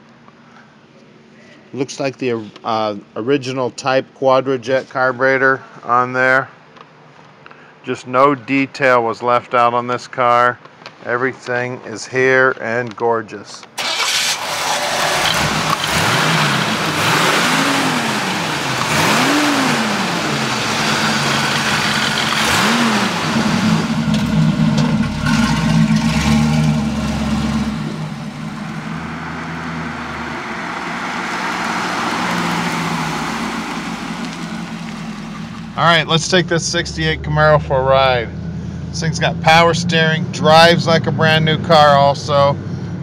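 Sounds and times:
car engine revving: 13.8 - 42.9.

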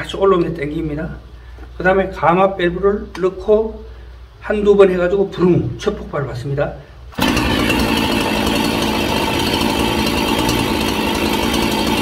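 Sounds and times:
chainsaw engine running: 7.1 - 12.0.

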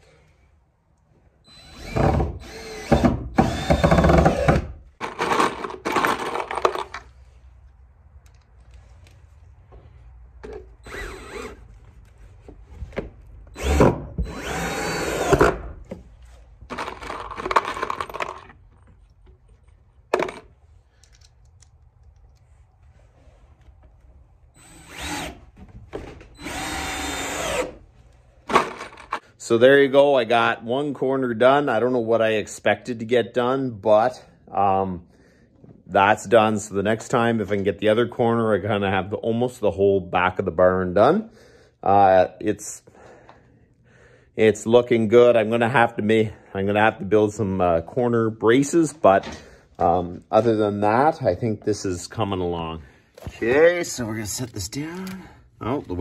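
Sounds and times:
cordless drill driving screws: 1.5 - 4.7, 10.8 - 11.6, 13.5 - 15.7, 24.6 - 25.4, 26.3 - 27.8.

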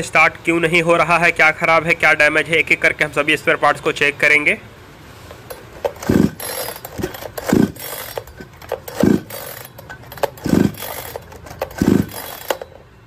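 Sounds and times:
chainsaw starter cord whirring: 5.5 - 12.9.

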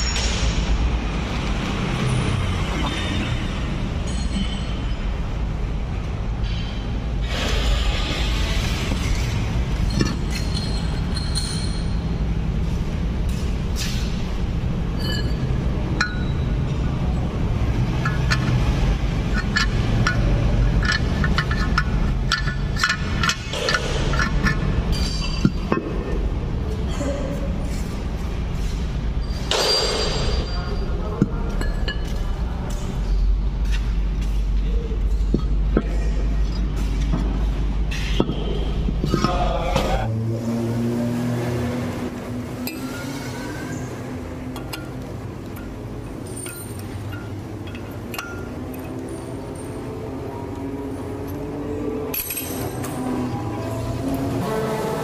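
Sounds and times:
light metallic clinks: 44.5 - 50.0.

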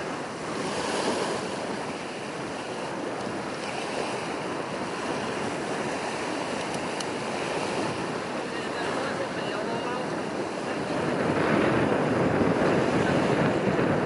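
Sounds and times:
small waves at water's edge: 0.0 - 14.0
wind: 0.0 - 14.0.

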